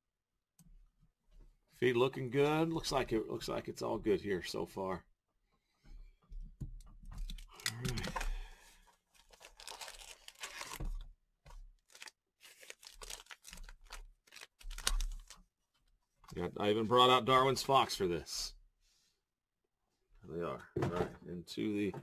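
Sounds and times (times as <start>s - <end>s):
foil crinkling: 9.1s - 10.9s, 11.8s - 15.4s
cardboard tearing: 9.2s - 10.8s, 11.8s - 15.4s.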